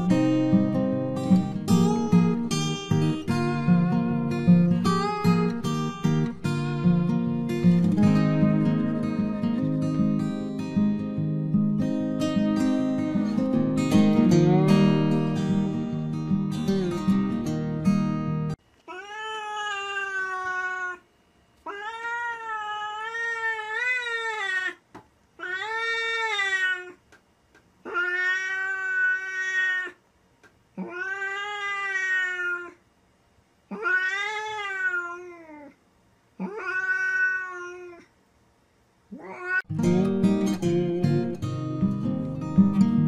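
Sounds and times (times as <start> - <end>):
cat yowling: 18.9 - 21.0, 21.6 - 24.8, 25.4 - 27.0, 27.8 - 30.0, 30.8 - 32.8, 33.7 - 35.8, 36.4 - 38.1, 39.1 - 39.7.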